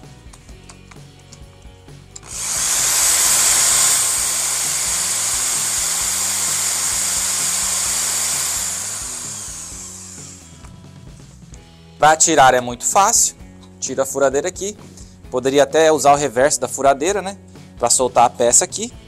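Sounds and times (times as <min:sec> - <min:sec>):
electric drill high-pitched whir: 0:02.2 - 0:10.7.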